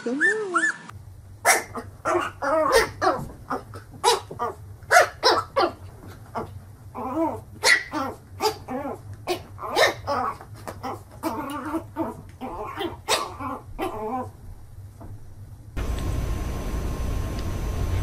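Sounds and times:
puppy barking: 0.2s - 5.8s, 7.6s - 8.7s, 9.3s - 10.4s, 12.5s - 14.1s.

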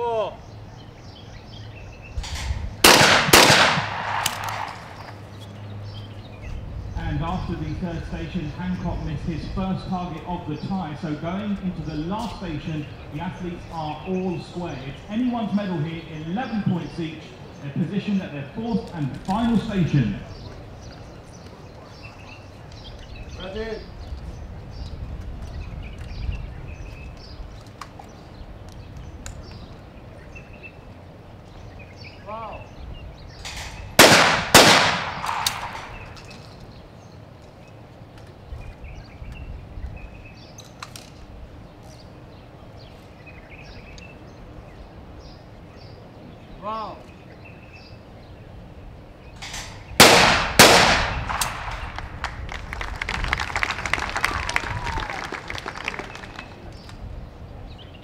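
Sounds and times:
loud shotgun shots echoing: 2.8s - 5.1s, 34.0s - 36.2s, 49.4s - 52.1s.

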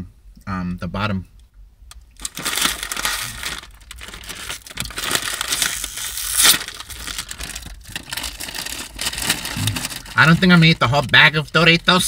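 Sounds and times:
chip bag crinkling and tearing: 2.2s - 10.8s.

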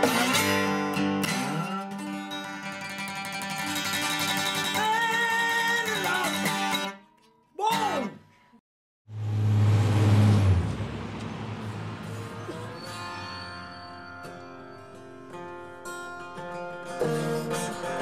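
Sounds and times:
acoustic guitar: 0.0s - 8.5s, 12.0s - 18.0s
person singing: 4.6s - 6.6s
city traffic noise: 9.1s - 16.2s.

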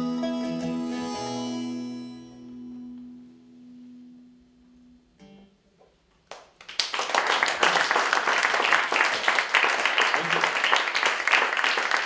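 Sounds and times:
folk tune on fiddle and guitar: 0.0s - 3.0s
audience applause: 6.3s - 12.0s.

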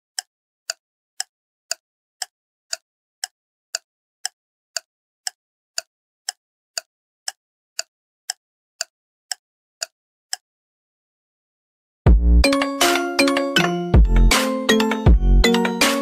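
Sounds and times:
ticking clicks: 12.4s - 16.0s.

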